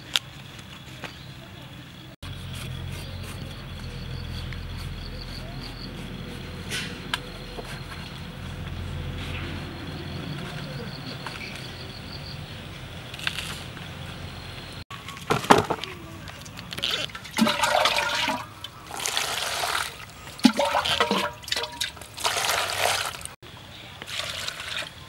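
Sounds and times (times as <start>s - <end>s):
water splashing from a cup: 16.4s - 23.4s, 24.0s - 24.9s.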